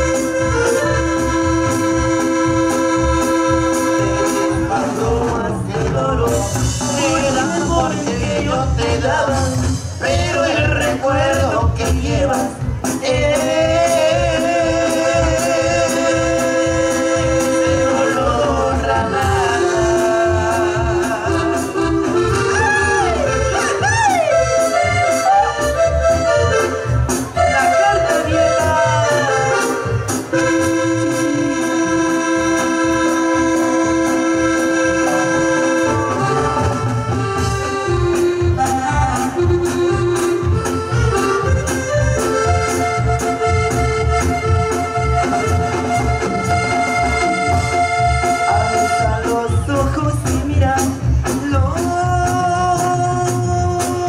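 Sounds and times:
accordion melody: 0.0s - 54.0s
bass: 0.0s - 54.0s
steady drum beat: 0.0s - 54.0s.

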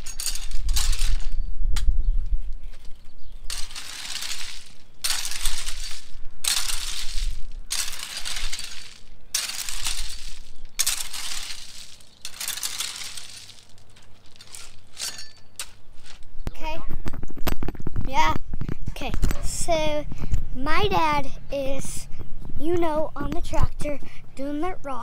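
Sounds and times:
tool scraping river rocks: 0.0s - 1.4s, 3.5s - 16.3s.

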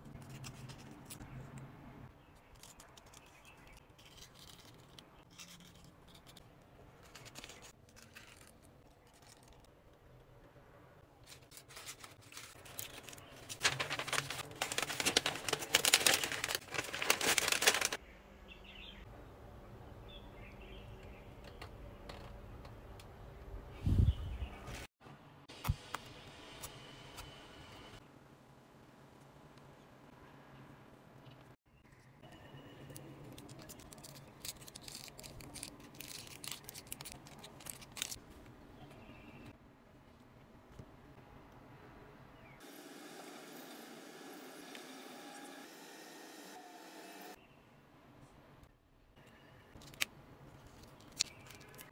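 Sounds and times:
paper rustling and crinkling: 2.5s - 9.8s, 11.2s - 18.0s, 33.2s - 38.4s, 49.8s - 51.9s.

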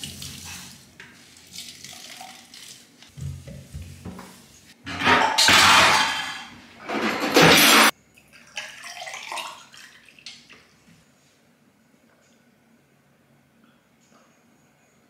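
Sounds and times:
water poured into a glass: 8.4s - 10.1s.

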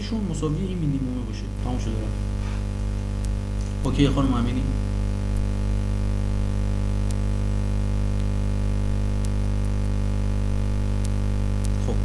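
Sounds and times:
electrical mains hum: 0.0s - 12.0s
faint ticks: 6.5s - 12.0s.

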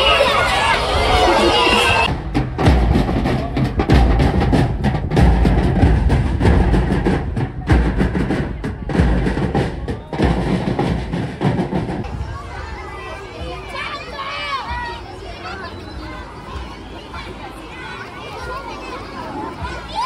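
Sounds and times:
bass drum beats: 1.9s - 12.3s
snare drums rapid strokes: 2.0s - 12.0s.

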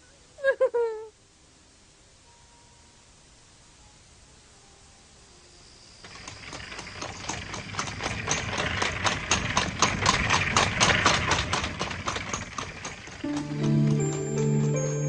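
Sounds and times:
clip-clop hoofbeats: 6.1s - 14.5s.

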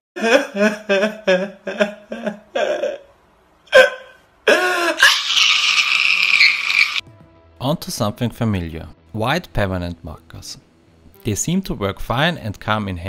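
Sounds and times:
man sobbing and wailing: 0.2s - 6.2s.

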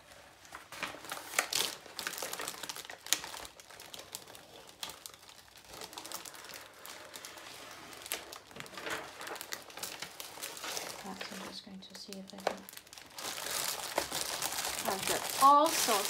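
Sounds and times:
paper and plastic crinkling: 0.0s - 16.0s.

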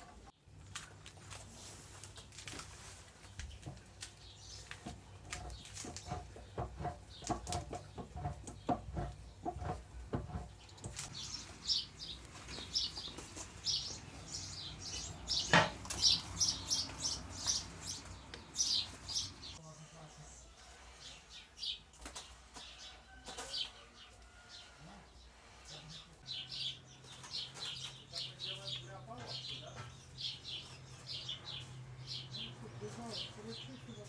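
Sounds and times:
small bird chirping: 10.5s - 19.6s.

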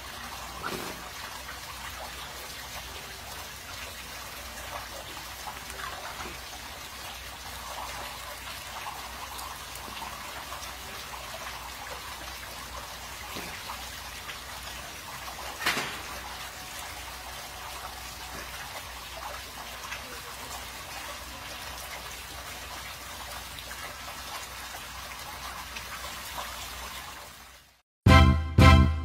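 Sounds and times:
water splash: 0.0s - 6.9s, 9.8s - 17.2s
small water drips: 0.0s - 27.8s
water trickling and lapping: 0.0s - 27.8s.

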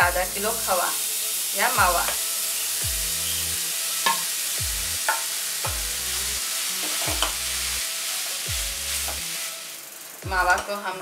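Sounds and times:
food sizzling in a pan: 0.0s - 11.0s.

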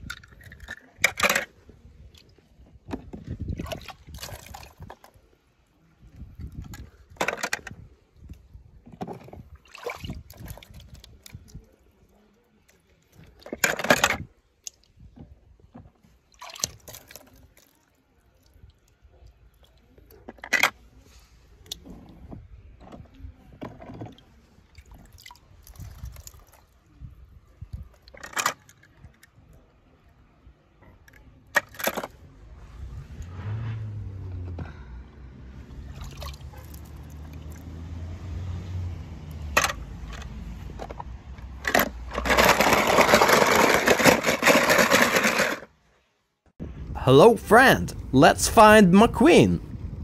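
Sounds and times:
water sloshing and splashing: 0.0s - 5.5s, 6.2s - 13.9s, 14.6s - 20.5s, 21.7s - 26.9s, 35.8s - 37.9s.

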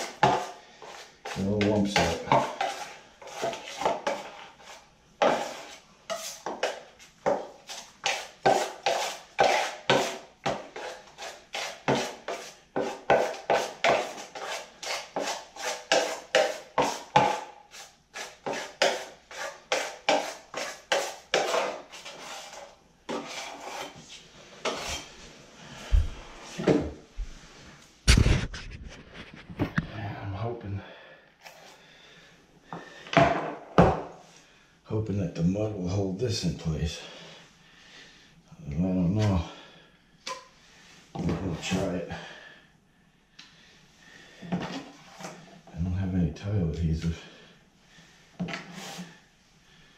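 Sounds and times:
knife scraping metal mud pan: 0.0s - 6.8s, 7.7s - 24.0s, 24.6s - 25.1s.

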